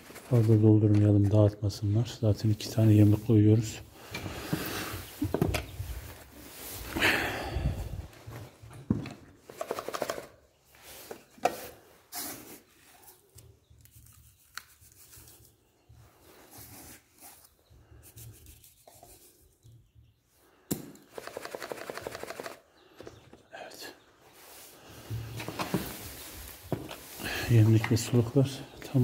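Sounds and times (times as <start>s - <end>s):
rubbing and scraping handling noises: 0.0s - 19.9s, 21.0s - 29.0s.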